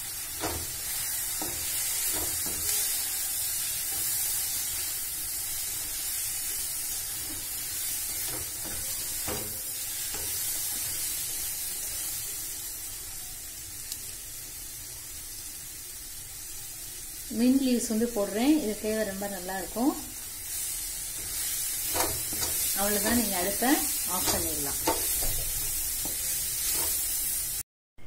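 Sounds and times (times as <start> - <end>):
vegetables sizzling in a wok: 0.0 - 27.6
spatula scraping and tapping pan: 0.4 - 3.0, 7.1 - 11.5, 21.1 - 27.2.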